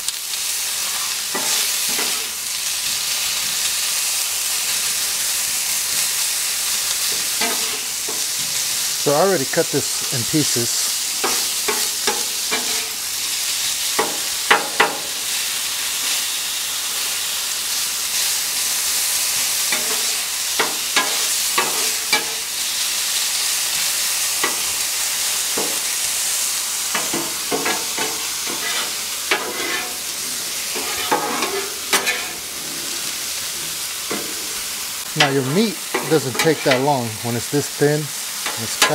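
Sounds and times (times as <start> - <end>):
meat and potatoes sizzling on griddle: 0.0 - 38.9
metal spatulas scraping and clacking: 1.3 - 2.3, 7.1 - 8.3, 11.2 - 13.0, 19.7 - 22.4, 26.9 - 32.4, 35.2 - 37.0, 38.4 - 38.9.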